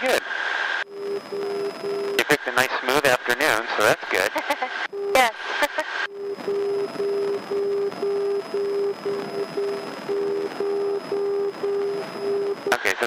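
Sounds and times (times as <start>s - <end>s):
electronic beeping: 4.9s - 13.0s.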